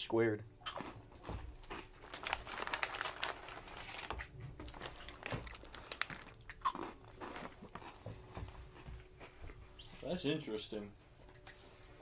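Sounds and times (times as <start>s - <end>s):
crunchy crackers being chewed: 0.6s - 8.1s
plastic wrapper crinkling: 1.6s - 7.8s.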